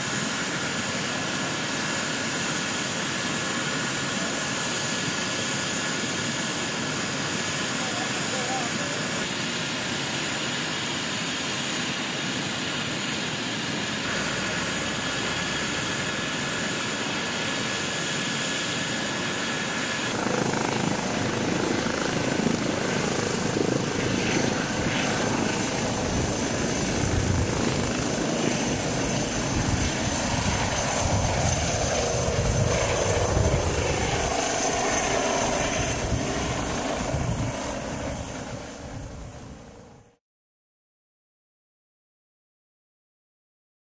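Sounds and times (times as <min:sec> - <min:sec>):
helicopter turbine whine and rotor: 0:00.0 - 0:40.2.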